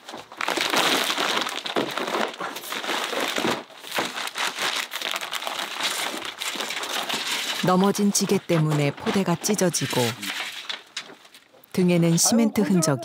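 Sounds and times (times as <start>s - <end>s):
sack tearing: 0.0s - 7.9s
cement sacks crinkling: 0.0s - 12.3s.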